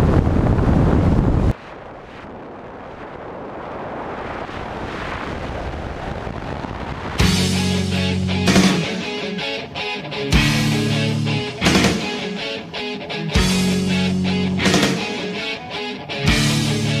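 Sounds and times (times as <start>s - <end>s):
wind buffeting microphone: 0.0s - 9.0s
rock music with electric guitar: 7.2s - 17.0s.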